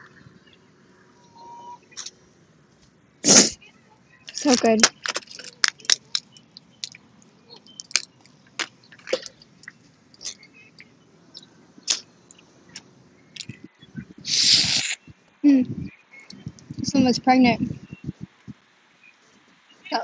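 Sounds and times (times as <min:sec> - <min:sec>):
shells cracking and snapping: 0:04.3 - 0:07.0, 0:07.6 - 0:10.4.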